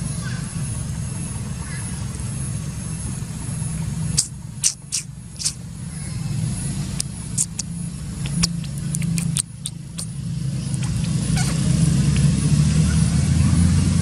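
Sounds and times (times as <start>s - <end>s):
vehicle engine running: 0.0s - 14.0s
short high-pitched ticks: 4.2s - 5.6s, 7.0s - 10.1s.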